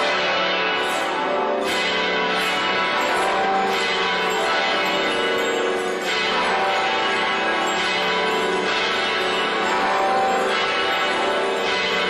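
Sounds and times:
church tower bells ringing: 0.0s - 12.0s
handbells ringing: 0.0s - 12.0s.

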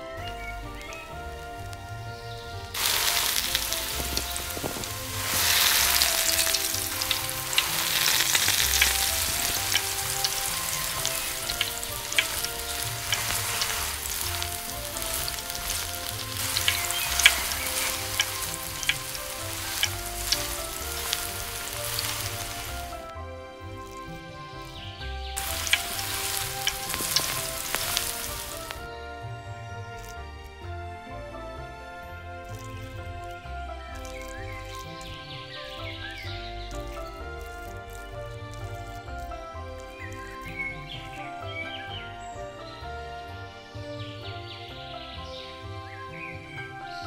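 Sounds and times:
background music: 0.0s - 47.0s
food sizzling in hot oil: 2.7s - 23.1s, 25.4s - 28.9s, 33.9s - 40.7s.

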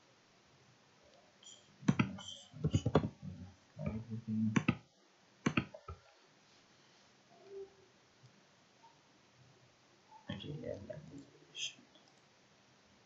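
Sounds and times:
keyboard keys clicking: 3.8s - 4.8s, 5.5s - 6.0s.

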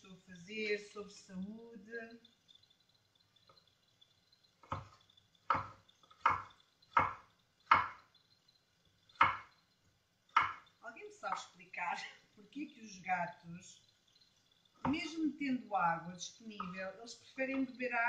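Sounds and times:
knife chopping on wooden board: 4.6s - 8.1s, 9.2s - 9.5s, 10.3s - 10.7s.

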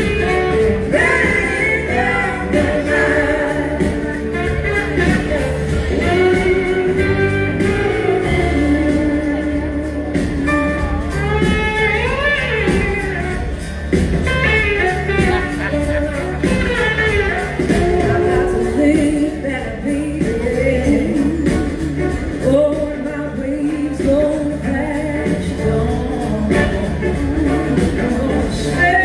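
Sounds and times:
live blues-rock band: 0.0s - 29.0s
lead vocal singing: 0.7s - 4.6s.

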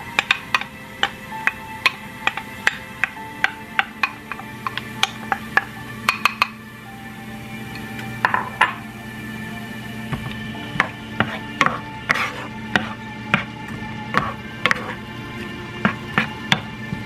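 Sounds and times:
spoon knocking against pan: 0.2s - 6.6s
spoon stirring food in oil: 10.2s - 16.7s.

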